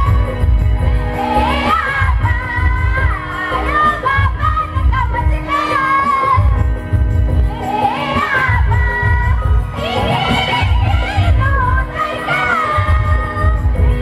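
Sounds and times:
barrel drum beat: 0.0s - 12.0s
group of voices singing: 7.5s - 14.0s.

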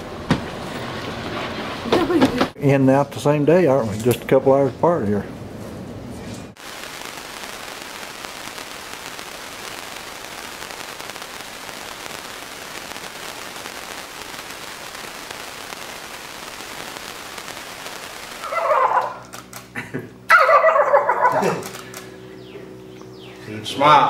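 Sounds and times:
steady hiss: 6.5s - 18.6s.

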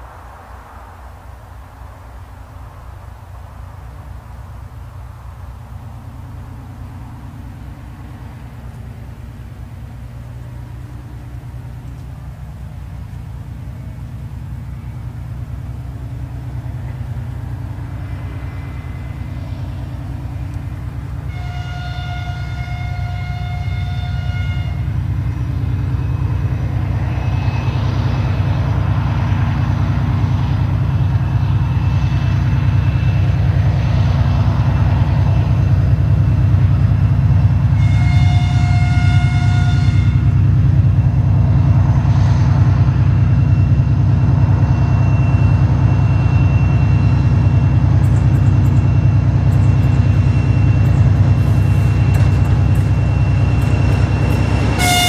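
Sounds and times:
diesel locomotive engine droning: 0.0s - 55.0s
locomotive horn blasts: 21.1s - 25.2s, 37.4s - 40.5s, 50.4s - 55.0s.

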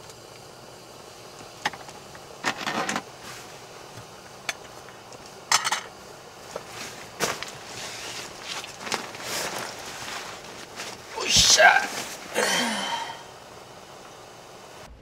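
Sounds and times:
gas stove hissing: 0.0s - 15.0s
cookware clinking and clattering: 5.5s - 5.9s.

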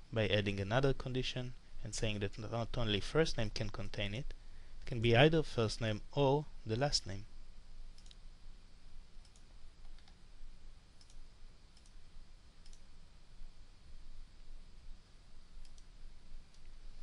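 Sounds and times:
faint low hum: 0.0s - 17.0s
computer mouse clicking: 8.0s - 8.2s, 9.2s - 10.2s, 11.0s - 11.2s, 11.8s - 12.0s, 12.6s - 12.8s, 15.6s - 15.9s.

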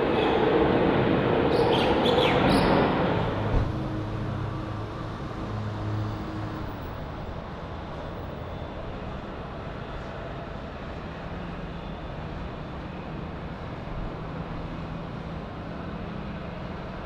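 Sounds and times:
jet engines rushing: 0.0s - 5.6s.

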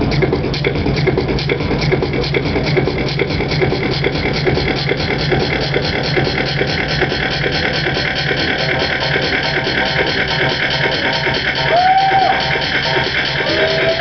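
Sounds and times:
looped electronic music: 0.0s - 14.0s.

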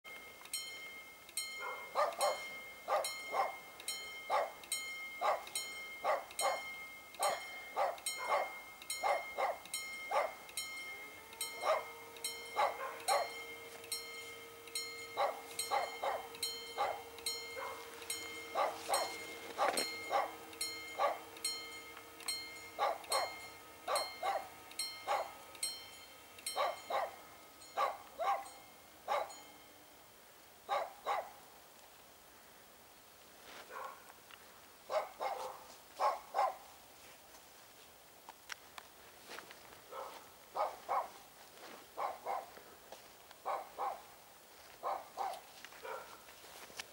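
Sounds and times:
faint steady hums: 0.1s - 46.9s
dog barking: 1.6s - 3.6s, 4.3s - 4.6s, 5.2s - 10.4s, 11.6s - 13.4s, 15.1s - 21.3s, 22.8s - 25.4s, 26.6s - 27.2s, 27.8s - 28.5s, 29.1s - 29.4s, 30.7s - 31.4s, 33.7s - 34.1s, 34.9s - 36.7s, 39.9s - 41.2s, 42.0s - 42.5s, 43.4s - 44.1s, 44.8s - 46.3s.

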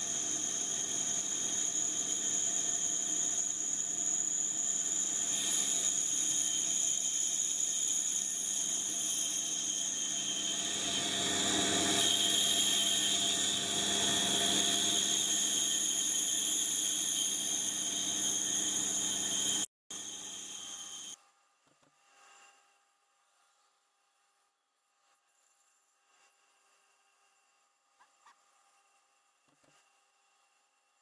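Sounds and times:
vacuum cleaner running: 0.0s - 20.8s
band saw cutting wood: 0.0s - 21.1s.

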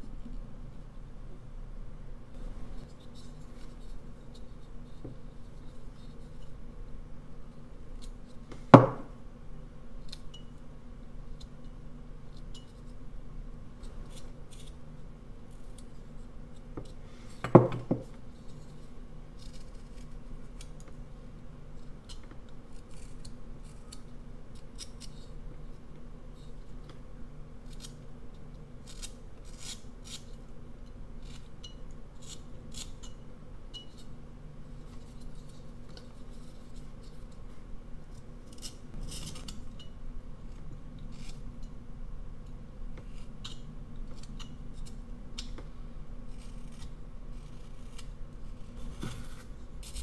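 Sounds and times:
knife slicing and scraping wood: 46.3s - 50.0s.

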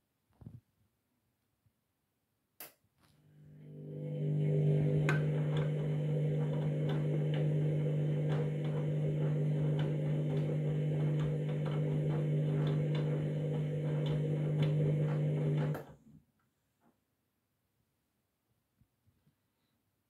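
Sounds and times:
washing machine motor hum: 3.2s - 16.1s.

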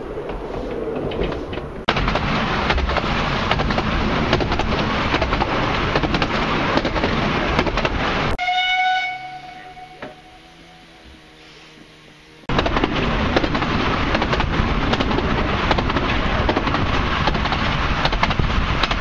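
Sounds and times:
clickety-clack of rail joints: 0.0s - 8.4s, 12.5s - 19.0s
train wheels on rails: 0.0s - 19.0s
steam locomotive whistle: 8.4s - 12.4s.

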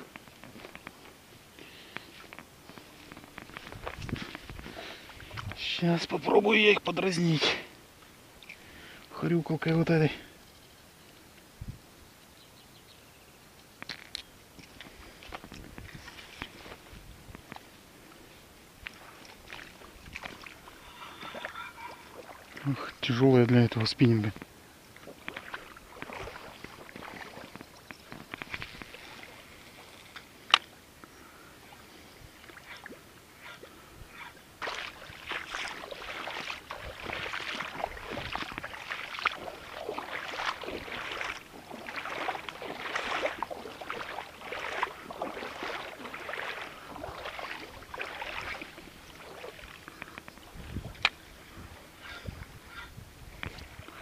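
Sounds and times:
popper lure splashing and chugging: 34.6s - 51.1s.

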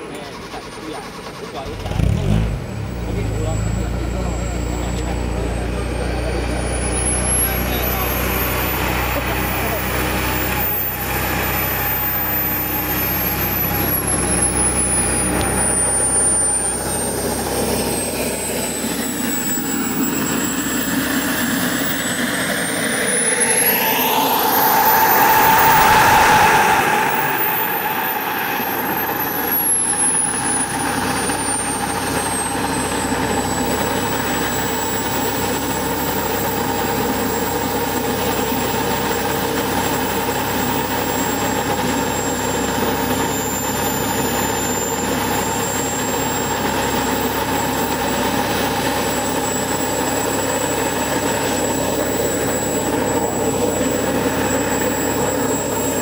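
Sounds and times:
model jet turbine whine: 0.0s - 56.0s.

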